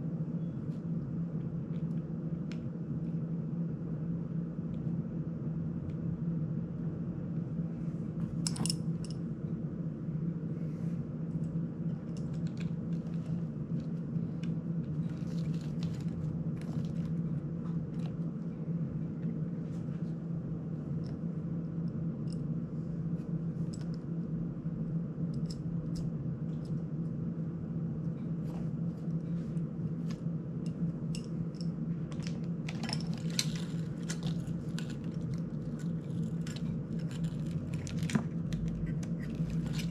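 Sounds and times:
steady low hum: 0:00.0 - 0:39.9
tools and screws clicking: 0:08.4 - 0:09.2.

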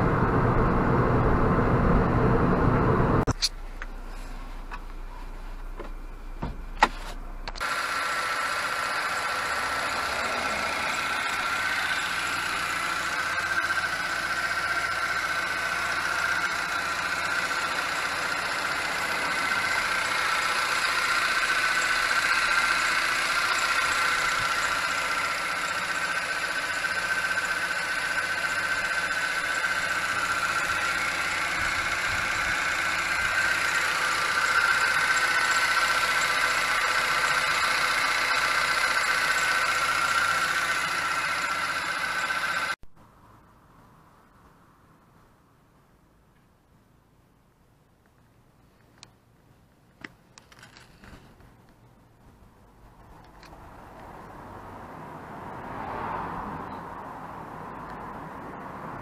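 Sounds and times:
high-pitched whine: 0:00.0 - 0:03.8
car engine idling: 0:00.0 - 0:42.8.

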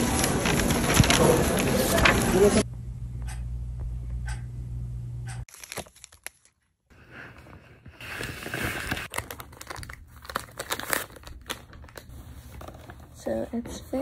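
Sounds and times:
steady low hum: 0:00.1 - 0:05.5.

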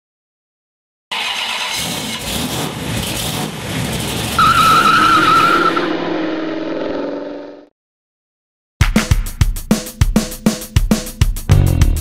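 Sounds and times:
car tyres skidding: 0:01.1 - 0:06.5
high wavering squeal: 0:04.4 - 0:07.6.

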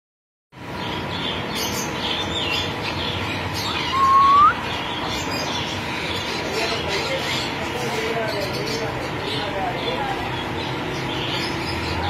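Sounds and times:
cage birds chirping: 0:00.6 - 0:12.0
rising whistle: 0:03.9 - 0:04.6.

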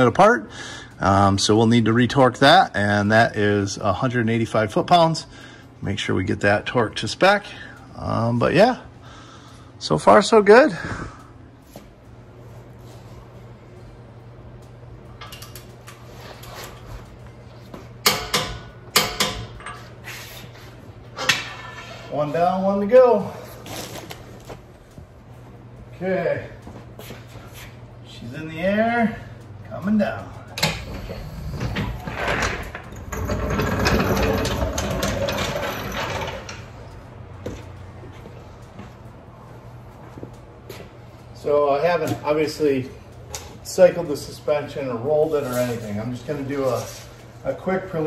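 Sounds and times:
hydraulic floor jack lowering: 0:30.6 - 0:36.7.

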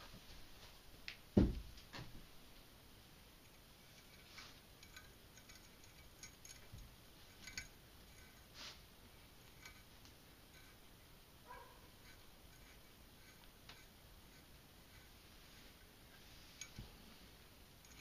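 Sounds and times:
dull low thump: 0:01.4 - 0:02.1
small metallic clicks: 0:03.4 - 0:08.5, 0:17.8 - 0:18.0.

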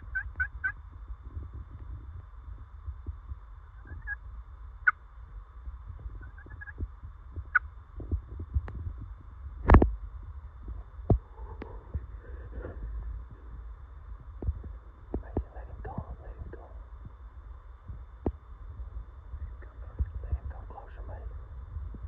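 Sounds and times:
turkey gobbling calls: 0:00.0 - 0:00.8, 0:03.6 - 0:04.2, 0:06.2 - 0:06.8
low steady rumble: 0:00.0 - 0:22.0.

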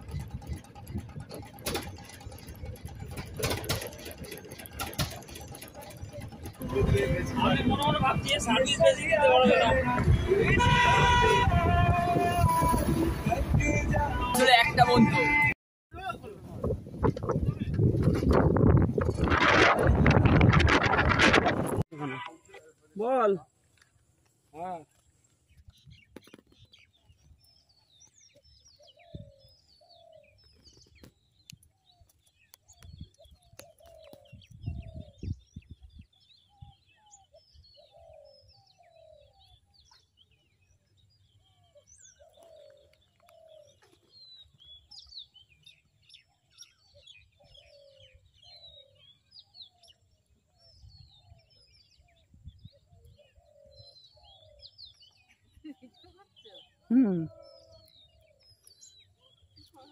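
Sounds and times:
low thumps and rumbles: 0:00.0 - 0:08.8, 0:16.4 - 0:21.8
small birds chirping: 0:22.0 - 0:59.9.

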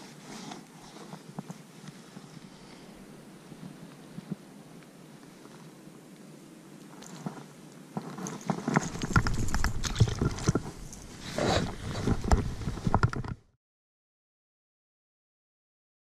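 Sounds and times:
clicks and knocks on pebbles: 0:07.0 - 0:13.5.

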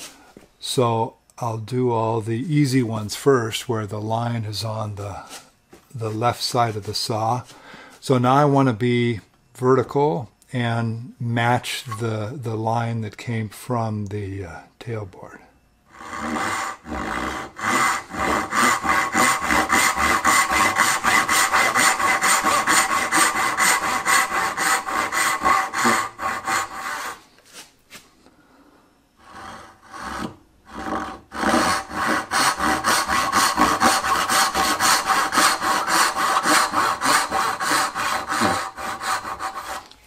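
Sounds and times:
hand saw cutting wood: 0:15.9 - 0:27.2, 0:29.2 - 0:40.0.

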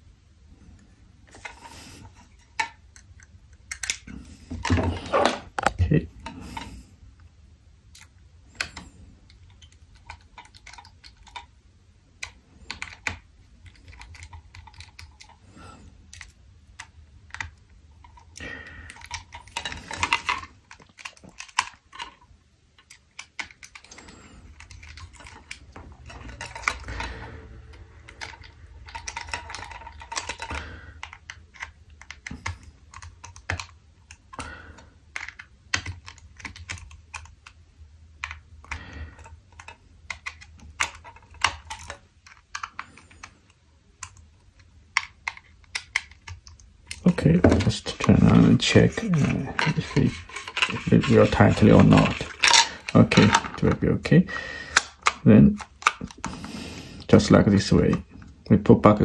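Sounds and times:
clicks and scrapes of plastic housing: 0:22.8 - 0:53.9.

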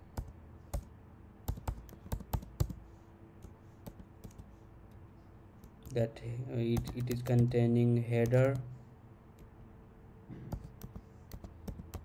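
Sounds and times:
computer keyboard typing: 0:01.5 - 0:02.8, 0:03.8 - 0:04.5, 0:06.7 - 0:07.6, 0:08.2 - 0:08.7, 0:10.5 - 0:12.0.

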